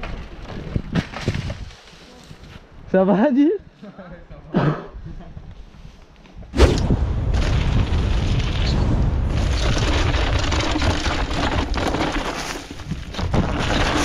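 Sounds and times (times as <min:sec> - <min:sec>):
bike knocks over rough ground: 0:00.0 - 0:01.7, 0:07.3 - 0:14.0
wind buffeting microphone: 0:06.4 - 0:11.8.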